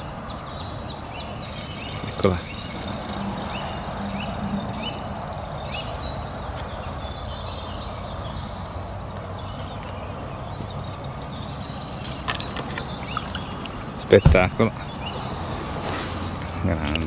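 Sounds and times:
bird chirps: 0:00.0 - 0:15.5
fast faint high-pitched ticking: 0:01.4 - 0:13.9.

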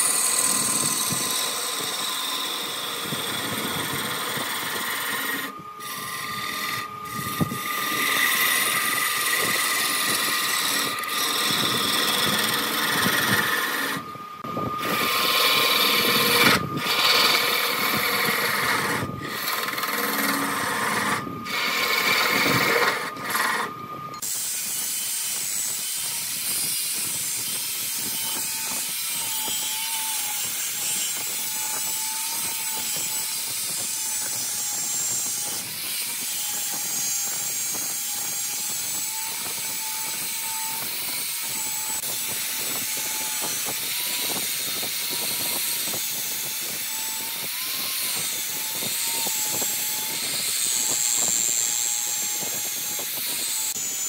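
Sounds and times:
turning tool cutting wood: 0:00.0 - 0:54.0
wood lathe whine: 0:00.0 - 0:54.0.

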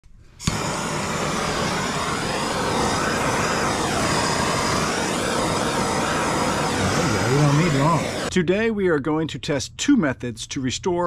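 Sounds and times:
gas torch flame hissing: 0:00.3 - 0:08.3.

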